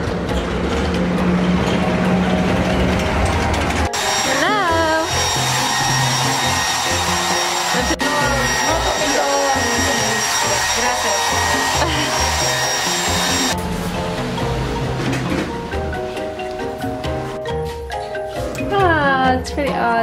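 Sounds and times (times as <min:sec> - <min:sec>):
hair dryer blowing: 0:03.8 - 0:13.6.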